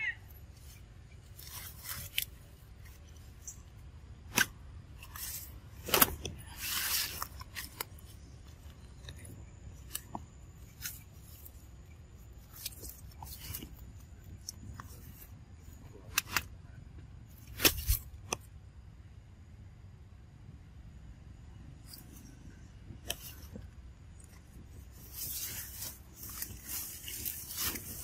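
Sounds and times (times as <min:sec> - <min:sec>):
leaves rustling: 0:00.0 - 0:16.5, 0:23.0 - 0:28.0
twigs snapping: 0:00.6 - 0:03.6, 0:04.3 - 0:11.6, 0:12.4 - 0:15.3, 0:16.1 - 0:16.5, 0:17.4 - 0:18.5, 0:23.0 - 0:28.0.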